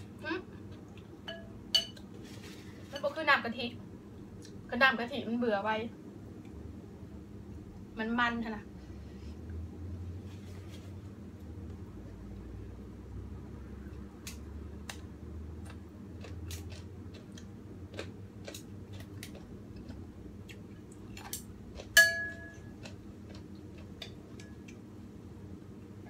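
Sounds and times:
spoon clinking on ceramic bowl: 1.3 - 2.0, 22.0 - 22.7.

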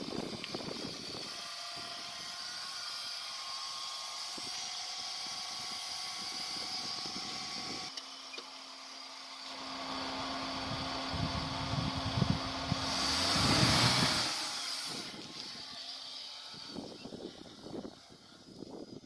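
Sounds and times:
tyres on dirt ground: 0.0 - 19.0
car engine running: 9.5 - 14.6.

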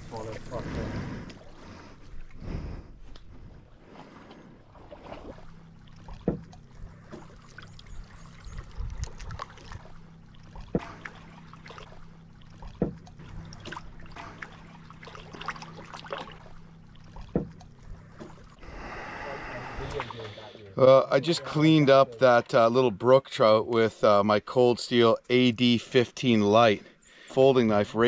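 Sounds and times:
water dripping off paddle: 4.2 - 18.6
sharp knocks: 6.2 - 6.5, 10.6 - 11.0, 17.2 - 17.6.

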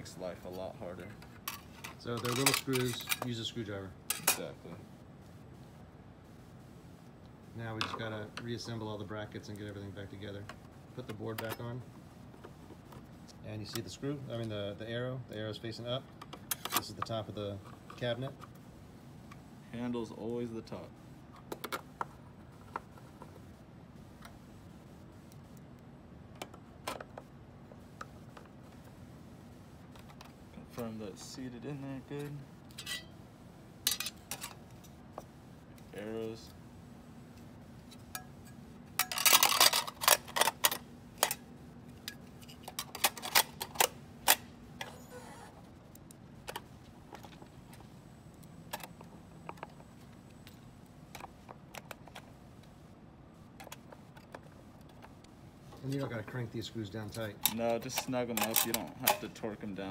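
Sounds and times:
low room hum: 0.0 - 59.9
small metal parts clicking: 39.0 - 41.4.

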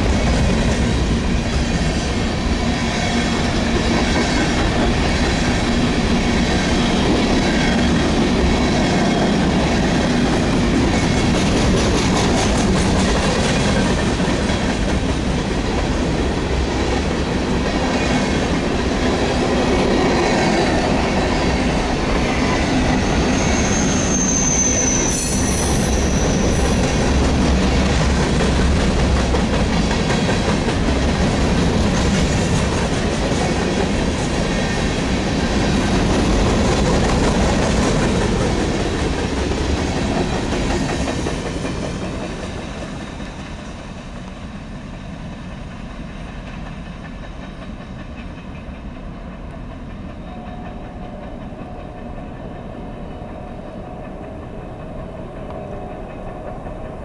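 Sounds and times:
train wheels rumbling on rails: 0.0 - 57.0
wheel squeal: 23.0 - 27.2.

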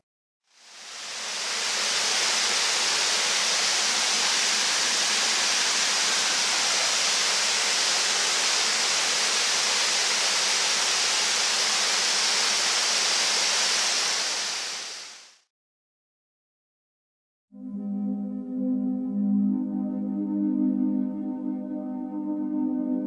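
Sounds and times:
waterfall rushing: 0.6 - 15.3.

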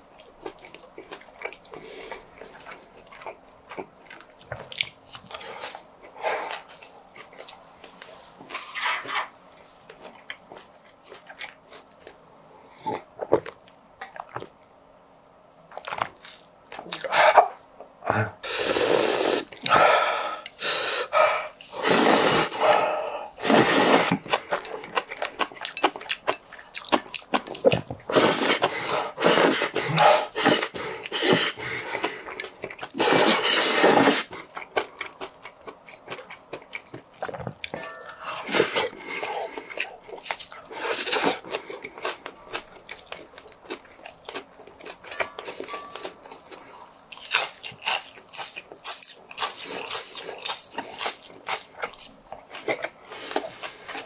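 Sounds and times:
person slurping noodles: 18.2 - 24.3, 28.1 - 32.2, 33.0 - 34.3.

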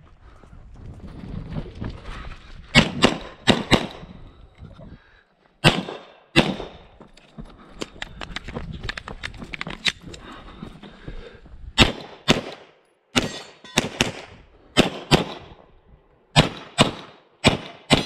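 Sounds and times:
handgun shots: 5.6 - 6.8, 13.2 - 15.5, 16.4 - 18.0.

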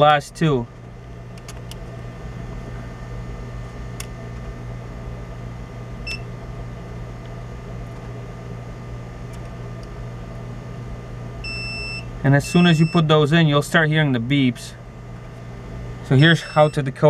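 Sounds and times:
low mechanical hum: 0.0 - 17.0
short high multimeter beep: 6.0 - 6.3, 11.4 - 13.1, 16.4 - 16.8.

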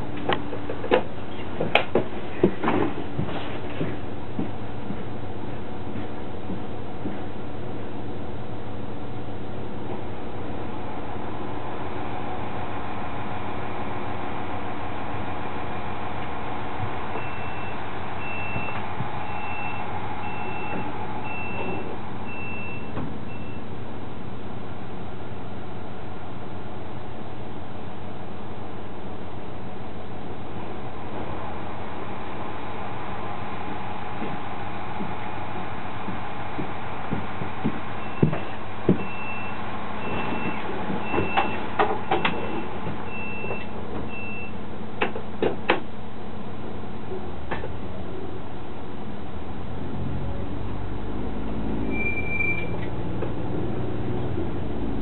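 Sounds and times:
diesel railcar running: 0.0 - 55.0
electronic warning beeps: 17.2 - 23.7, 38.0 - 44.6.

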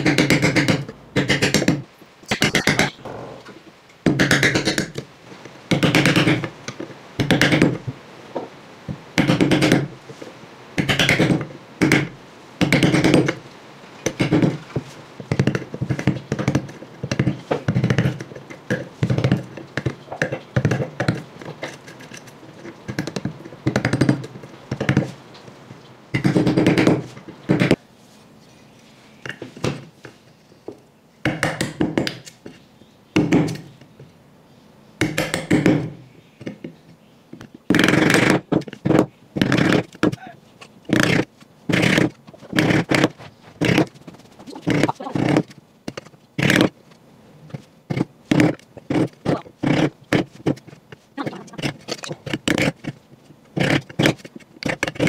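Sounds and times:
hand tool working wood: 14.1 - 25.2, 37.7 - 46.8, 47.5 - 55.0.

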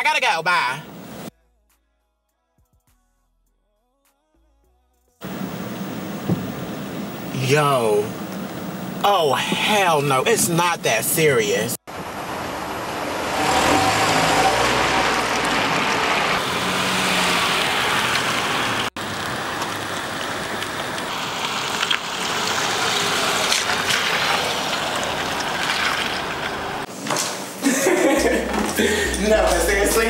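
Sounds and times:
road traffic: 0.0 - 1.3, 5.2 - 27.1
light rain hiss: 5.2 - 9.7, 13.8 - 26.9.

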